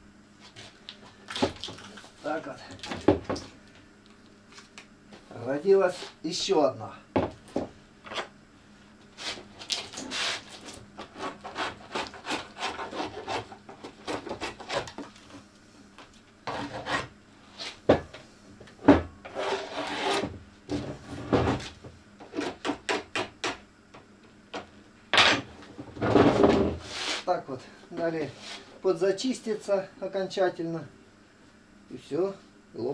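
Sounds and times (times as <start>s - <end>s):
hand tool scraping fibreglass edges: 19.2s - 20.3s.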